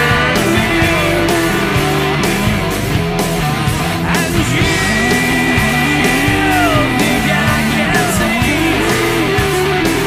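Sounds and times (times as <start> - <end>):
distorted electric guitars: 0.0 - 10.0
drums: 0.0 - 10.0
man singing: 4.0 - 9.9.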